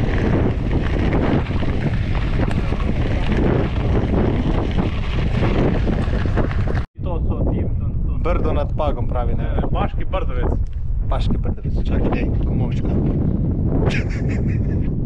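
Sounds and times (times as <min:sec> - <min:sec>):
bike tyres crunching on gravel: 0:00.0 - 0:06.9
wind buffeting microphone: 0:00.0 - 0:15.0.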